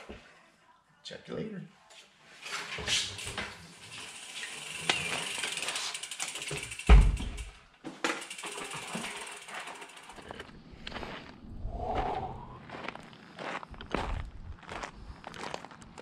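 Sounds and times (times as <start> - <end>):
bike freewheel hub ticking: 3.7 - 11.1.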